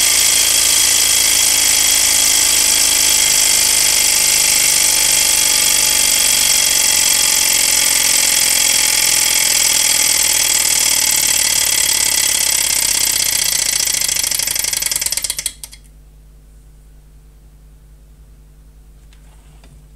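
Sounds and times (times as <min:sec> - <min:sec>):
small engine rattling and whining: 0:00.0 - 0:15.9.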